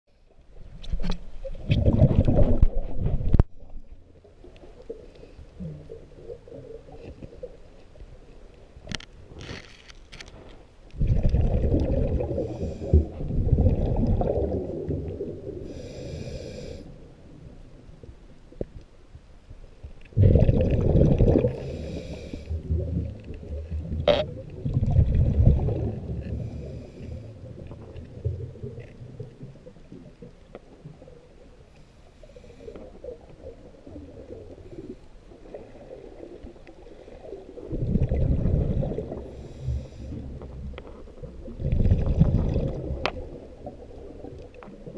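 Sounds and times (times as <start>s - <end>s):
diver exhaling bubbles: 1.6s - 3.4s, 11.0s - 16.7s, 20.2s - 28.0s, 37.2s - 43.8s
hissy breathing: 15.6s - 17.0s, 21.5s - 22.6s, 26.2s - 27.4s, 39.2s - 40.3s.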